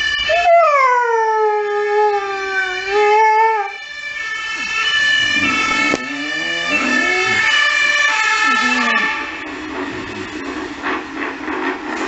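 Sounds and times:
emergency vehicle siren: 0.0s - 11.9s
dog howling: 0.3s - 3.7s, 5.0s - 9.3s.

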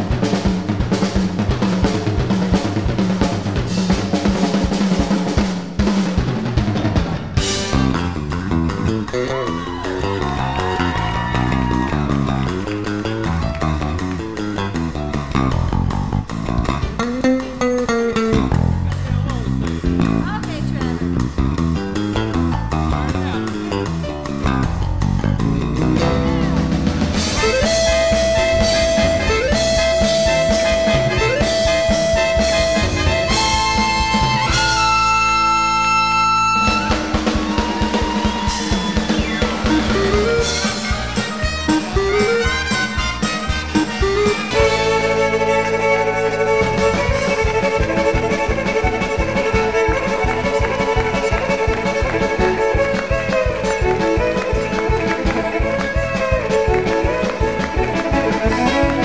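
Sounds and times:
band accompaniment: 0.0s - 59.0s
bass: 0.0s - 59.0s
drums: 0.0s - 59.0s
fiddle playing a tune: 7.4s - 59.0s
lead instrument holding high note: 27.4s - 40.8s.

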